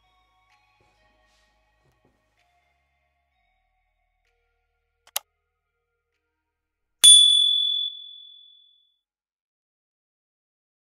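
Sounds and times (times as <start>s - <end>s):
notification bell ding: 7.0s - 8.5s.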